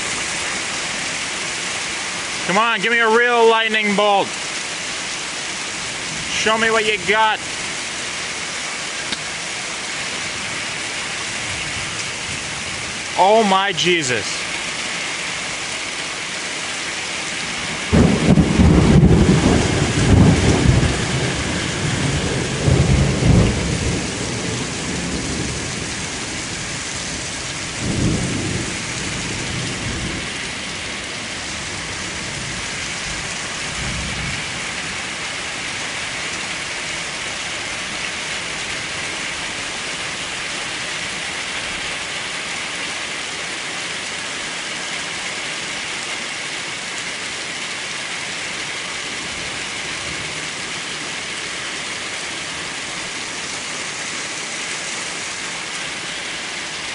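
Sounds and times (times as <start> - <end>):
steady rain: 0.0 - 56.9
thunder rumbling: 17.6 - 26.6, 27.7 - 30.7.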